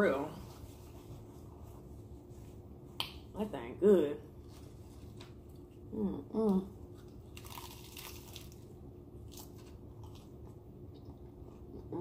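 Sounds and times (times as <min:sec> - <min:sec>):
person humming: 0:05.9 - 0:06.7
taco shell crunching: 0:07.0 - 0:10.4.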